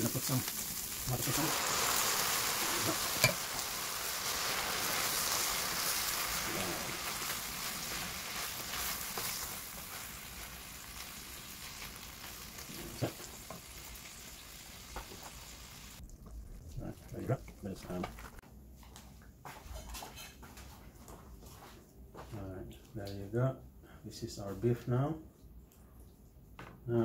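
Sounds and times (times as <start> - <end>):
meat sizzling in a frying pan: 0.0 - 16.0.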